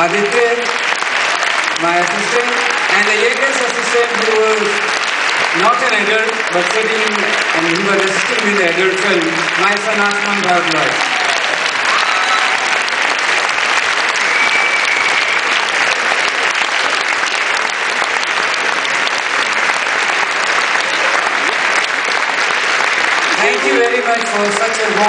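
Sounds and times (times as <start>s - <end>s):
audience applauding: 0.0s - 25.0s.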